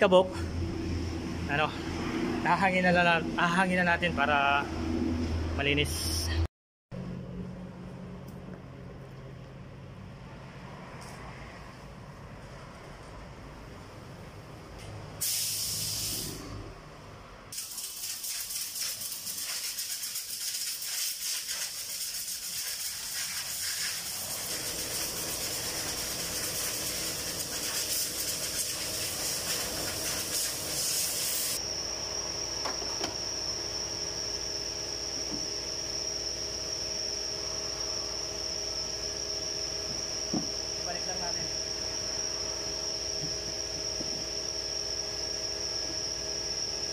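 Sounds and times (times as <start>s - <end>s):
high whine: 0.0s - 9.0s, 24.0s - 46.9s
air blow gun hissing: 15.2s - 16.5s, 17.6s - 31.6s.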